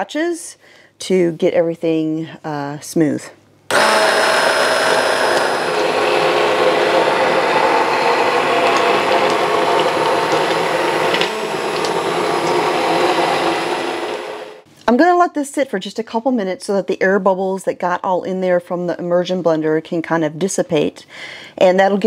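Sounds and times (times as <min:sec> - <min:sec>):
immersion blender motor whine: 0:03.7 - 0:14.7.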